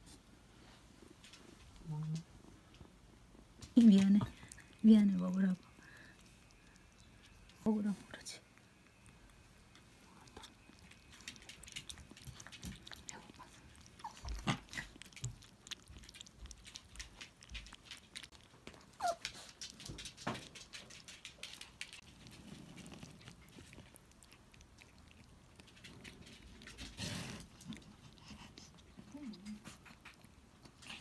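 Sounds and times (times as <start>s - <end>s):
kitten chewing wet food: 0.1s - 31.0s.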